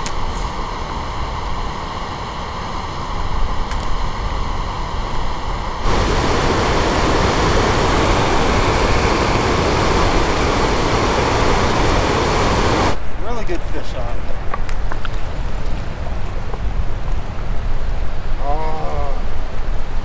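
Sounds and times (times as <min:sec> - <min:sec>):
stream rushing over rocks: 0:05.8 - 0:13.0
waterfall pouring: 0:05.8 - 0:13.0.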